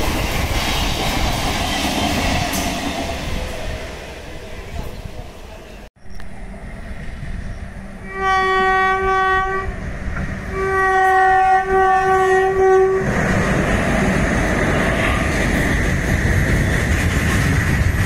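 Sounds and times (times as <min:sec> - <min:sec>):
train rumble and wheel noise: 0:00.0 - 0:18.0
locomotive horn blasts: 0:08.0 - 0:09.8, 0:10.5 - 0:13.0.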